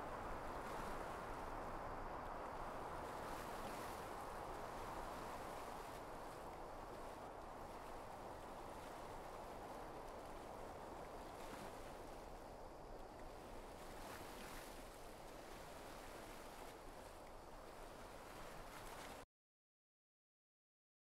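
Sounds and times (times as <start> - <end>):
small waves lapping: 0.0 - 19.2.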